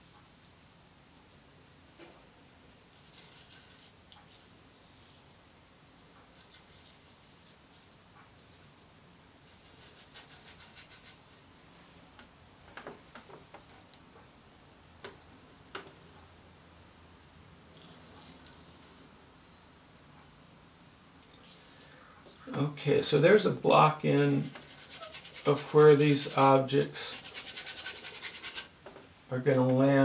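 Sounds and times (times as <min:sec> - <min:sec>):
paintbrush strokes on canvas: 0:00.1 - 0:11.5, 0:17.8 - 0:19.8, 0:23.9 - 0:28.7.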